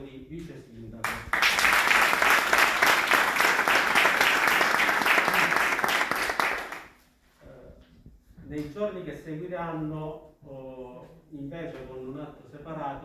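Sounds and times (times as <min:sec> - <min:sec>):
applause: 0:01.0 - 0:07.0.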